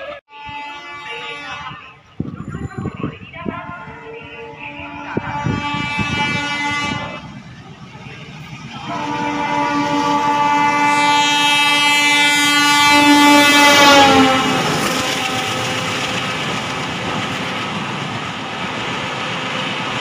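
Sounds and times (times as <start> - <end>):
locomotive horn blasts: 0.2 - 2.1, 4.2 - 7.3, 8.8 - 16.5.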